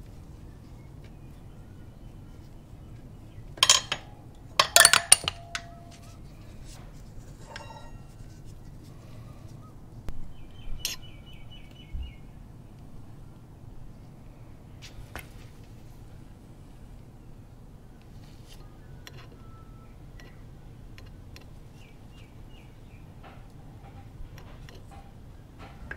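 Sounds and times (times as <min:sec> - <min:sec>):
metal clinks and clicks: 0:03.6 - 0:06.0.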